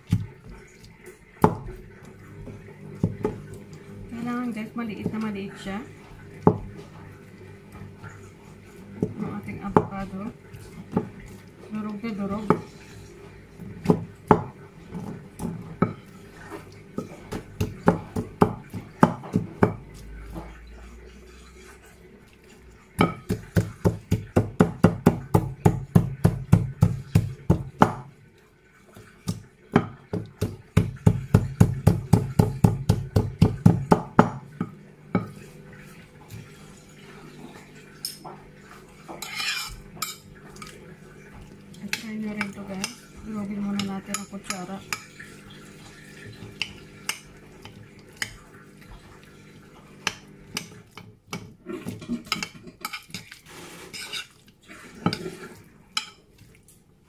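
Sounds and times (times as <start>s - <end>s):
pestle knocking against bowl: 23.0s - 28.1s, 29.3s - 34.4s.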